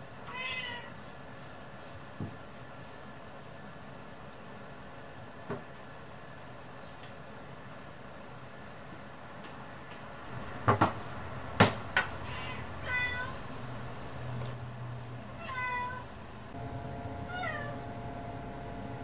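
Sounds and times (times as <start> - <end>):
cat meowing: 0.3 - 0.9, 12.2 - 13.4, 15.4 - 16.1, 17.3 - 17.8.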